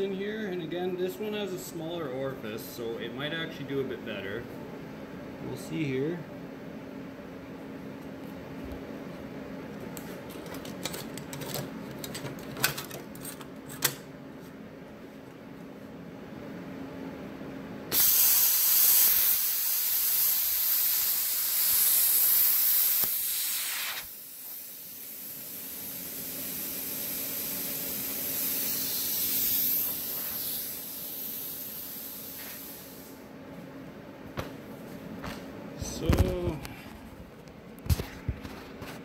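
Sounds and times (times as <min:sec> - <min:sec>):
plasma cutter cutting sheet metal: 0:17.9 - 0:24.2, 0:28.3 - 0:32.8
air hissing through torch: 0:17.9 - 0:33.3.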